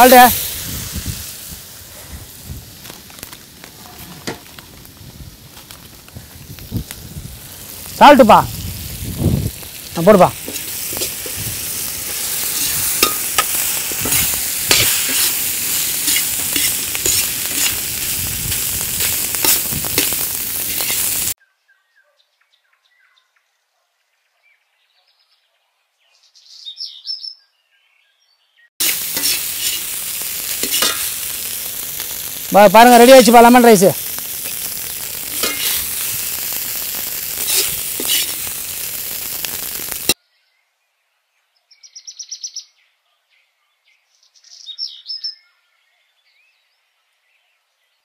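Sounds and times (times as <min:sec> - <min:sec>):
food sizzling in a pan: 0:00.0 - 0:21.4, 0:28.8 - 0:40.2
metal ladle scraping a pan: 0:03.8 - 0:04.6, 0:12.4 - 0:17.9, 0:28.8 - 0:31.2, 0:34.4 - 0:36.2, 0:37.3 - 0:38.5.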